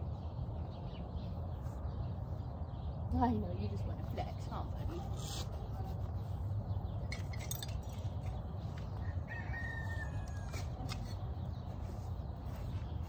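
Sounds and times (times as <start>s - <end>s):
faint rooster crowing: 8.8s - 11.2s.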